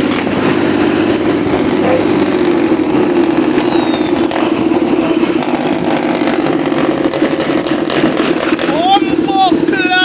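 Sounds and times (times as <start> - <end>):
truck engine droning: 0.0 - 10.0.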